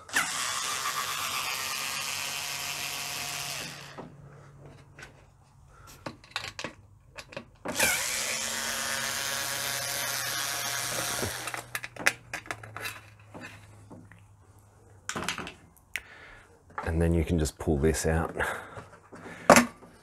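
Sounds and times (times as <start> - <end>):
power screwdriver running: 0.0 - 4.0, 7.7 - 11.9
tool and screws clicking: 6.0 - 13.6.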